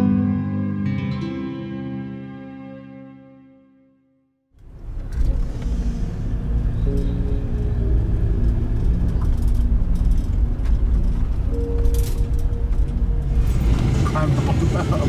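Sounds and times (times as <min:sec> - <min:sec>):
road and engine rumble in cabin: 0:04.6 - 0:15.0.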